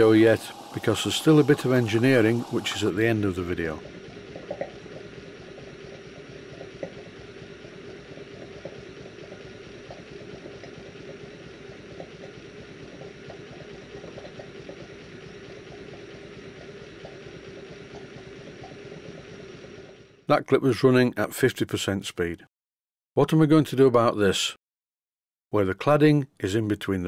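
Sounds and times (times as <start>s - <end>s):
model steam engine gurgling and ticking: 0.0s - 4.0s
gas burner hissing: 0.0s - 13.6s.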